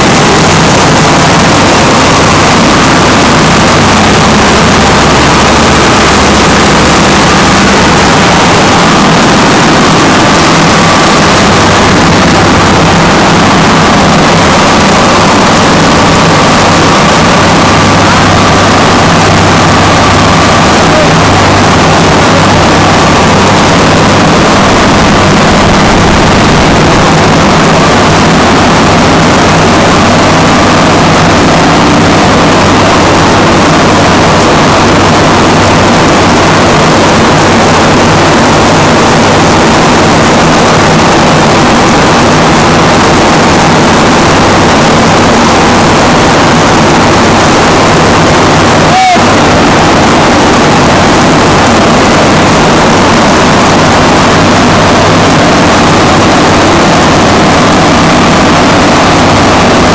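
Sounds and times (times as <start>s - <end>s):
diesel generator running: 0.0s - 59.9s.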